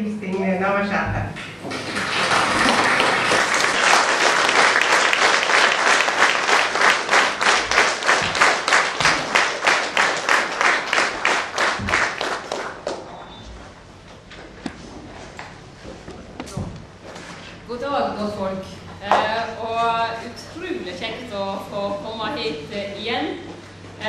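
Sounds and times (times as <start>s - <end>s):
audience applauding: 1.6s - 13.3s.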